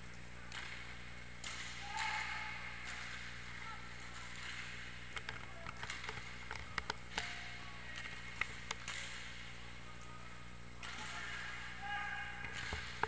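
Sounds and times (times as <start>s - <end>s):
hockey stick clacks: 0.5s - 3.4s, 4.0s - 9.5s, 10.8s - 11.6s, 12.4s - 13.0s.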